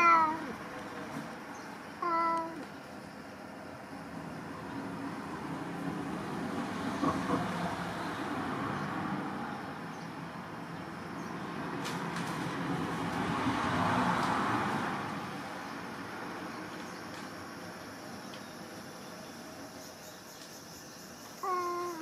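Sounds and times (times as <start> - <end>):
road traffic noise: 0.0 - 22.0
vehicle passing by: 4.0 - 16.8.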